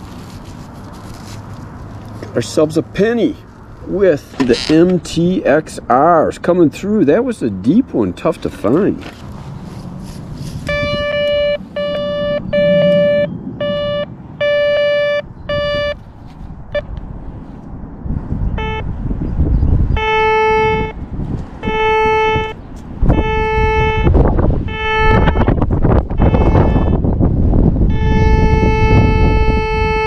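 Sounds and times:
metal detector beeps: 10.6 - 16.0, 18.6 - 18.8.

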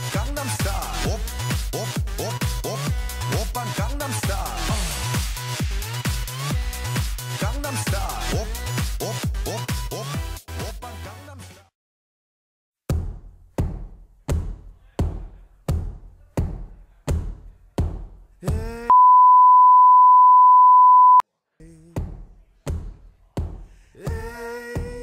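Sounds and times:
censor beep: 18.9 - 21.2.

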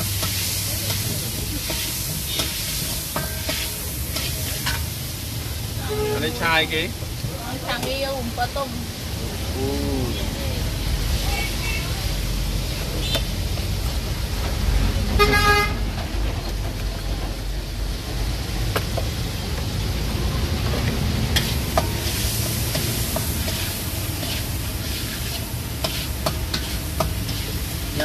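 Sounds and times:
street traffic rumble: 0.0 - 28.0
vehicle horn honk: 5.8 - 6.5, 15.2 - 15.8.

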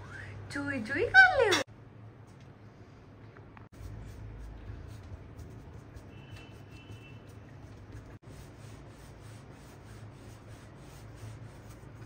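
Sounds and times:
rolling pin rubbing on dough: 5.2 - 12.0.

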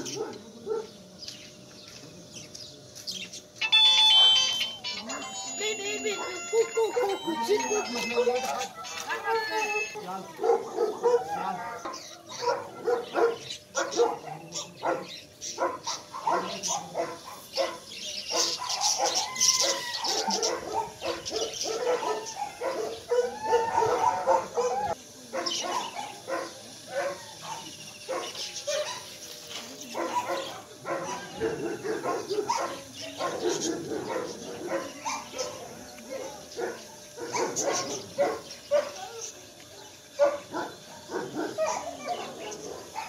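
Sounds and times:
chiming bell-like tune: 3.6 - 8.5
puppies whining and yelping: 3.6 - 10.2, 18.7 - 25.0.

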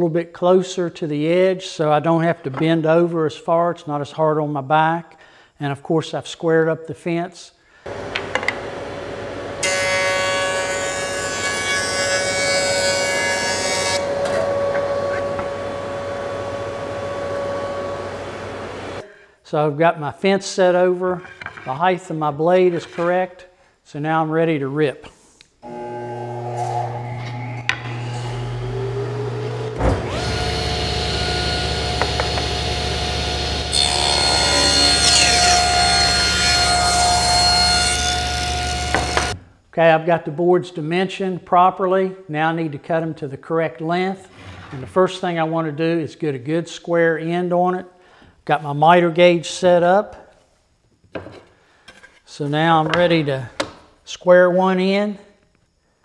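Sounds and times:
jointer motor humming: 14.0 - 19.0, 25.6 - 39.4
low hum: 14.0 - 19.0
saw blade cutting wood: 25.7 - 28.7, 30.0 - 39.4.

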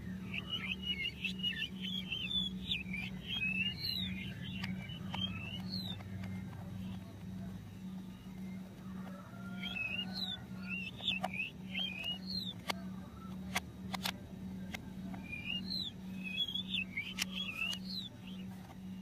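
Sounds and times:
plastic toy screwdriver clicks: 13.4 - 14.2.

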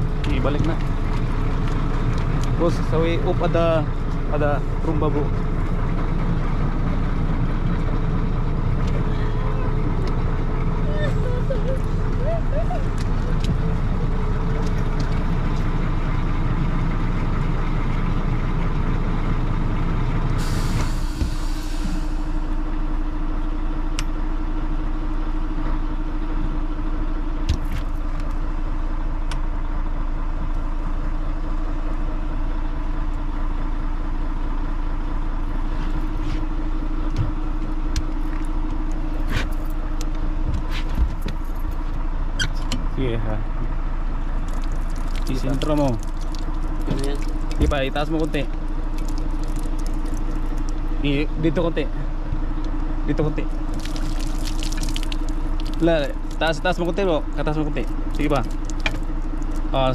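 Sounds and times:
fire truck engine running: 0.0 - 59.9.

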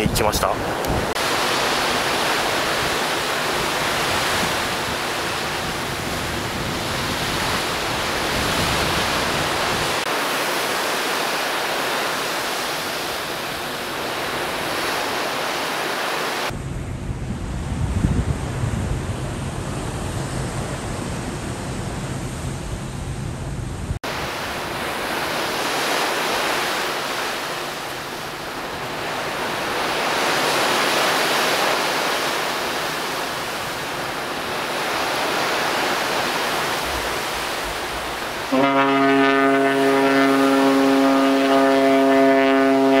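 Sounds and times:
sea noise: 0.0 - 43.0
wind: 0.0 - 43.0
ship's horn deep blast: 38.4 - 43.0.

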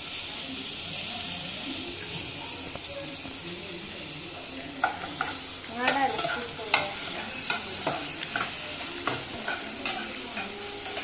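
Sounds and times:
food sizzling in a pan: 0.0 - 11.0
spoon scraping a saucepan: 4.8 - 11.0.

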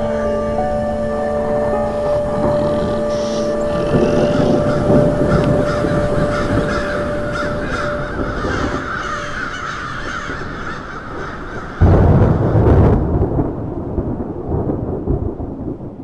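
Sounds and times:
steady held tone: 0.0 - 8.9
crows cawing: 0.0 - 12.6.

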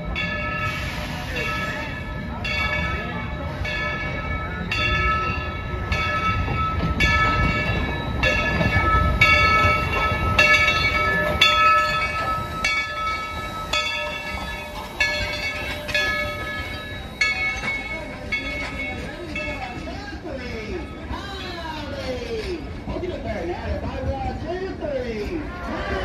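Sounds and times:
locomotive bell ringing: 0.0 - 23.0
low rumble of train: 0.0 - 26.0.

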